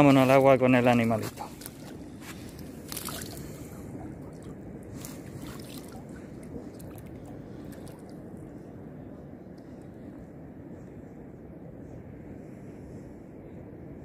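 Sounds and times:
low water rush: 0.0 - 14.0
hands splashing in water: 1.6 - 3.6, 4.3 - 8.1
water trickling: 1.6 - 8.2.

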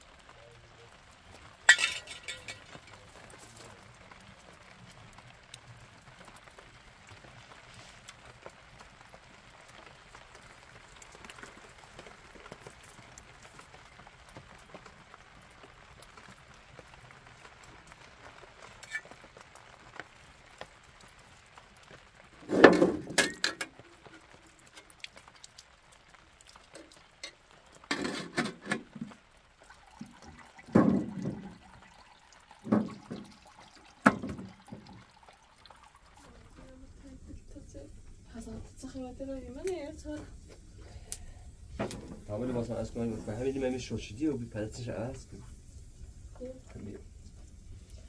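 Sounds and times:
water sloshing in metal tin: 1.7 - 3.1, 22.4 - 25.0, 26.7 - 36.8.

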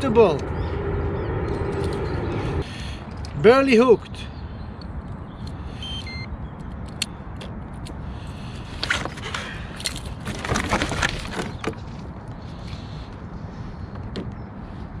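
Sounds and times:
steady low rumble: 0.0 - 3.5
rustling and scraping: 8.5 - 13.1.

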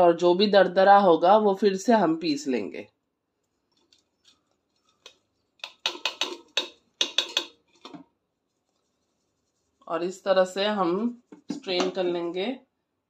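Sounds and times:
metal jar tapping on wire strainer: 5.0 - 8.0.

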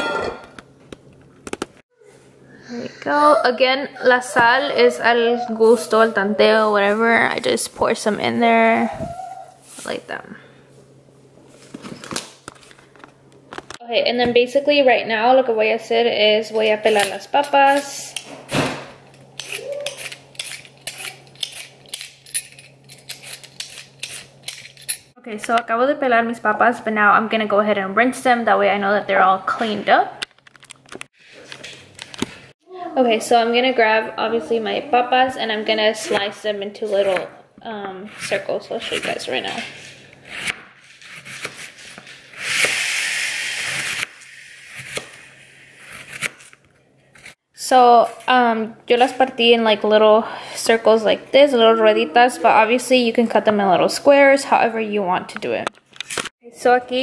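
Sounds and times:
vegetable peeler scraping potato: 19.4 - 22.2, 23.0 - 24.8, 38.0 - 47.4.

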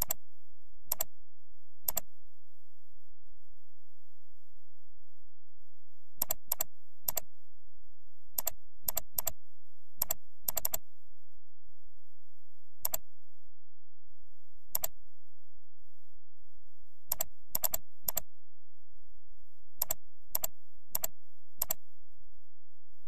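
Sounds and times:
mouse and keyboard clicks: 0.0 - 0.2, 0.9 - 1.1, 1.9 - 2.1, 6.2 - 7.3, 8.4 - 9.4, 10.0 - 10.8, 12.8 - 13.0, 14.7 - 15.0, 17.1 - 18.3, 19.8 - 21.8.

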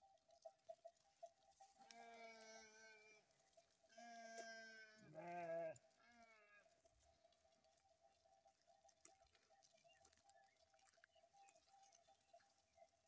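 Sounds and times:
sheep bleating: 1.8 - 3.3, 3.9 - 6.7.

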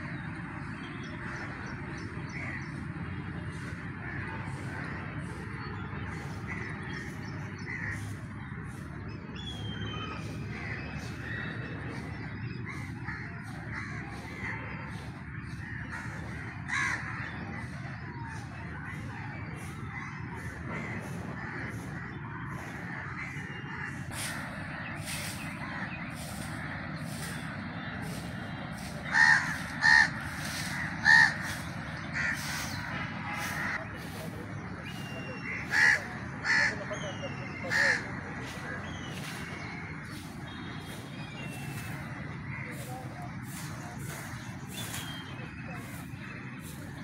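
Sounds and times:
crows cawing: 6.2 - 8.8, 10.5 - 18.1, 19.5 - 27.4, 28.8 - 34.2, 34.9 - 40.2.

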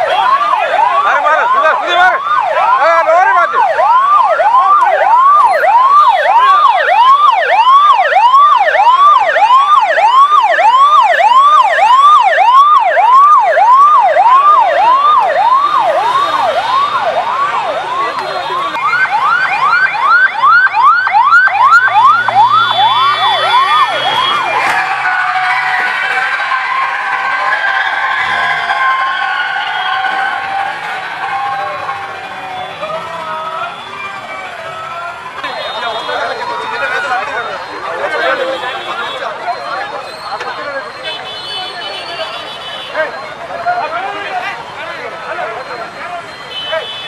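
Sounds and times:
ambulance siren: 0.0 - 47.0.

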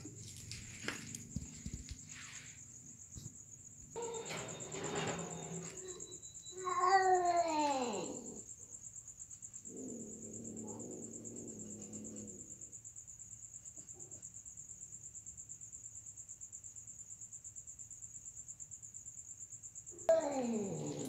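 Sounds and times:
crickets chirping: 0.0 - 21.0
cat growling yowl: 4.0 - 8.5, 9.6 - 12.7, 20.0 - 21.0.

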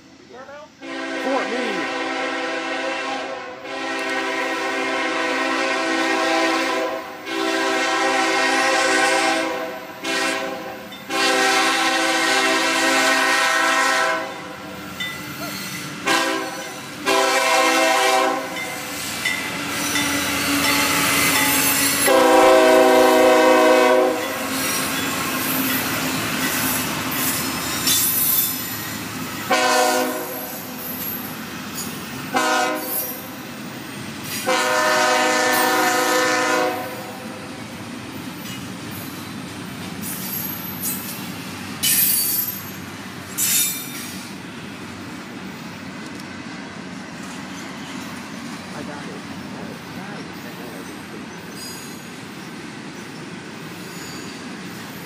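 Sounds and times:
train air horn blasts: 0.8 - 14.6, 16.0 - 18.7, 19.7 - 24.4, 29.5 - 30.8, 32.3 - 33.4, 34.3 - 37.4
train cars clattering on rails: 12.3 - 45.1, 47.1 - 55.0.

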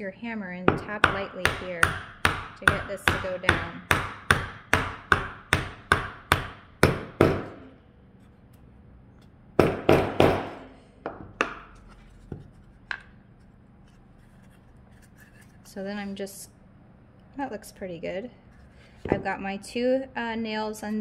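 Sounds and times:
hammer striking nail into wood: 1.0 - 7.7, 9.6 - 11.7.

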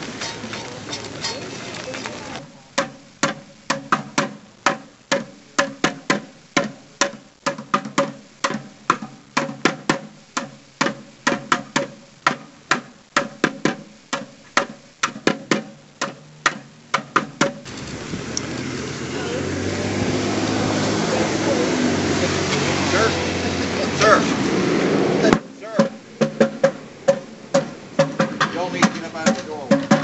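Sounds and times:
plastic bucket drumming: 2.3 - 17.8, 25.2 - 30.0.

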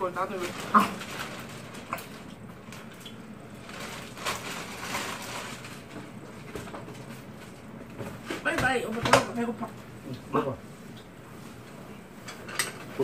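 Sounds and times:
plastic bag rustling: 0.0 - 8.2.

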